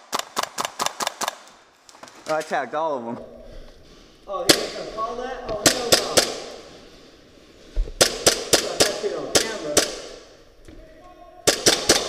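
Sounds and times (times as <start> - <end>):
airsoft guns firing: 0.0 - 1.6, 4.4 - 6.8, 8.0 - 10.4, 11.4 - 12.0.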